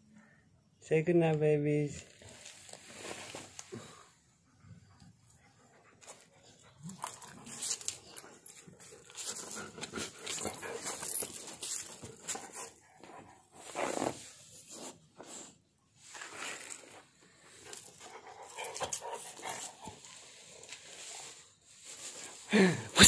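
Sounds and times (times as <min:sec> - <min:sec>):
dogs snapping and scuffling: 0:06.0 - 0:12.8, 0:17.7 - 0:20.9.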